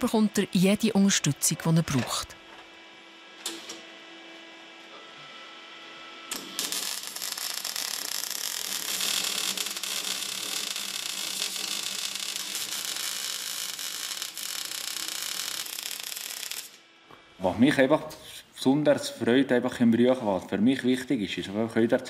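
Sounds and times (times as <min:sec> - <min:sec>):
welding arc crackling: 0:06.3 - 0:16.9.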